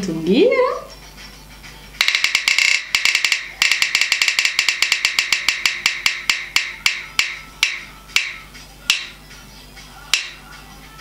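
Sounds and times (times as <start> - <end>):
phone app wheel ticking: 2.0 - 9.2.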